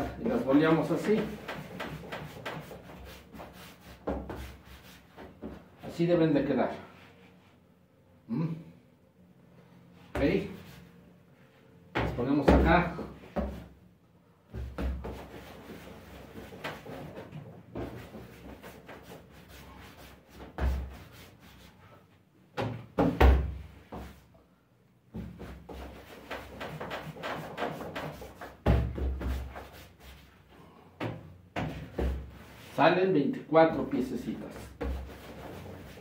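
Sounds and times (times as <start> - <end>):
dough thumping on work table: 11.9 - 13.7.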